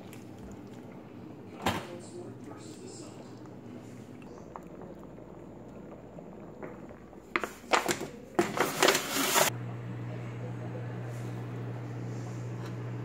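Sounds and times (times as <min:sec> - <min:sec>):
steady low hum: 0:00.0 - 0:08.4, 0:09.5 - 0:13.0
foil pan crinkling: 0:07.4 - 0:09.5.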